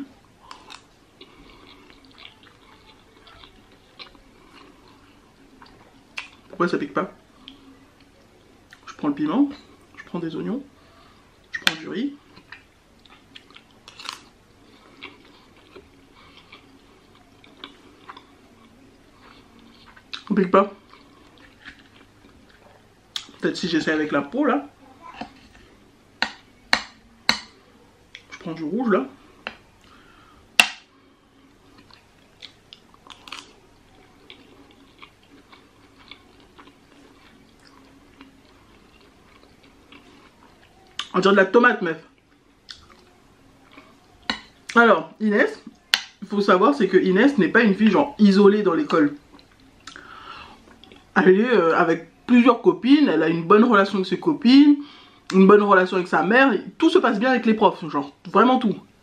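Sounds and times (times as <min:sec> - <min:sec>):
person chewing food: 0:00.2 - 0:06.6, 0:10.8 - 0:23.4, 0:29.2 - 0:41.2, 0:42.1 - 0:44.8, 0:49.1 - 0:51.1
wet mouth clicks: 0:49.4 - 0:50.1.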